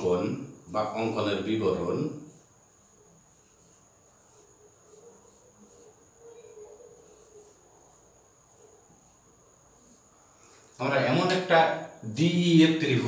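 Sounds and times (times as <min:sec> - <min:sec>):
marker squeaking on whiteboard: 0:00.8 - 0:11.5
faint high-pitched trill: 0:03.0 - 0:10.0.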